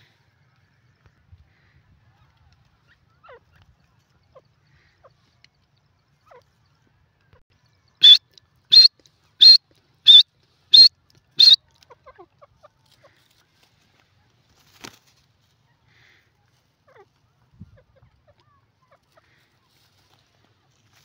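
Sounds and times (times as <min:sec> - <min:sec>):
bird calling high notes: 0:08.0 - 0:11.6.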